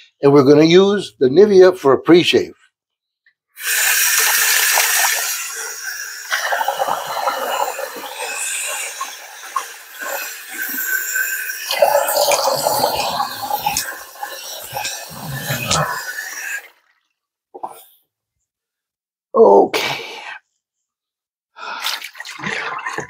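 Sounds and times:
tap water running into sink: 0:03.6 - 0:16.7
hands splashing water: 0:04.0 - 0:05.4, 0:21.8 - 0:23.0.

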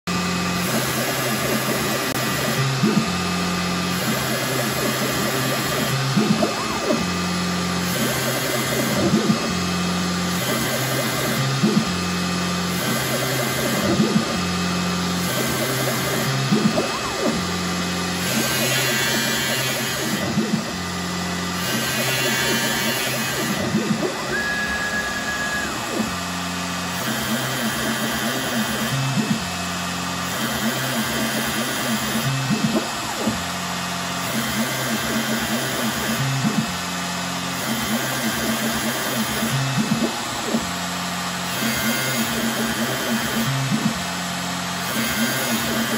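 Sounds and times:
high steady whine: 0:00.1 - 0:29.6
machine motor hum: 0:00.1 - 0:45.9
rising and falling chirps: 0:24.2 - 0:25.9.

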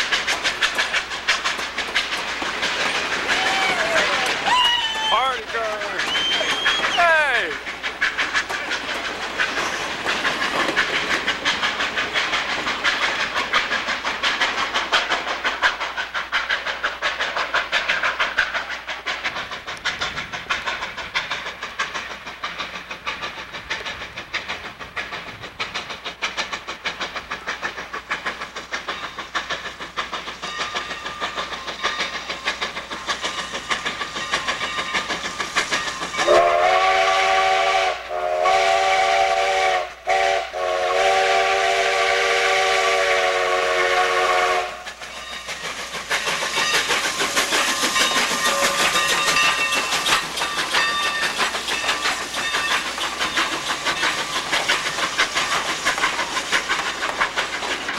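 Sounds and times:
train wheels clacking on rails: 0:00.0 - 0:57.9
steam whistle chord: 0:36.3 - 0:44.8.

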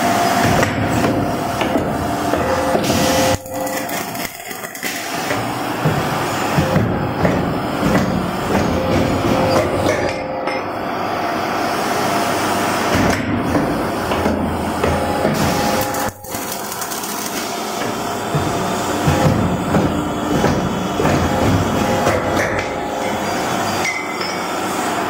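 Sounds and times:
tooling knocks: 0:05.3 - 0:10.6, 0:17.9 - 0:23.2
machine mechanical clatter: 0:12.9 - 0:22.8.

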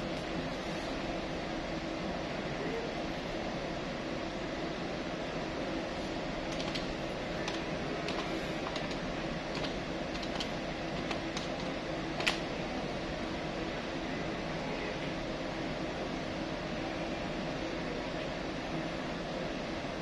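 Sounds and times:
fan-like hum: 0:00.0 - 0:20.0.

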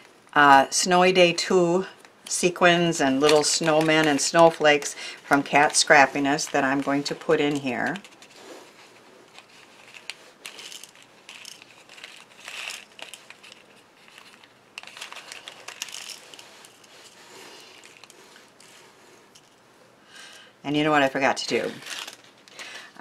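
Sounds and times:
plastic bag crinkling: 0:03.1 - 0:19.6, 0:21.4 - 0:22.9.

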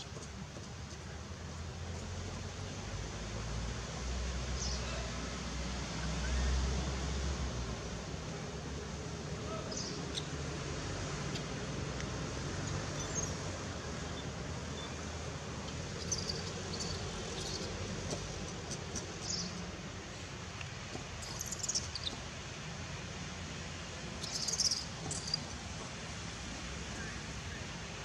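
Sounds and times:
background hum and hiss: 0:00.0 - 0:28.0
high-pitched chirps: 0:24.2 - 0:25.4.

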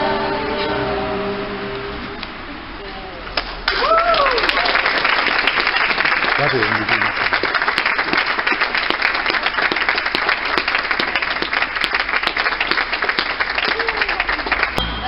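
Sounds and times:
people applauding: 0:03.4 - 0:14.8.

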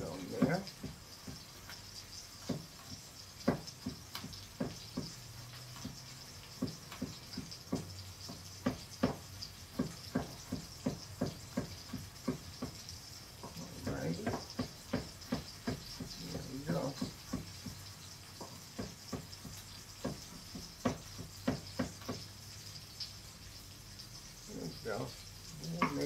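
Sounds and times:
faint steady hiss: 0:00.0 - 0:26.0
knife tapping on cutting board: 0:03.4 - 0:05.2, 0:05.8 - 0:12.8, 0:13.4 - 0:17.8, 0:18.4 - 0:22.3, 0:25.8 - 0:26.0.

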